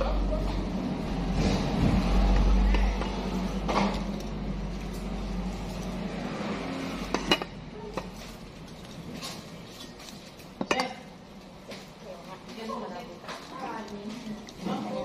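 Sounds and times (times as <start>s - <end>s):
tableware clinking: 7.0s - 11.1s.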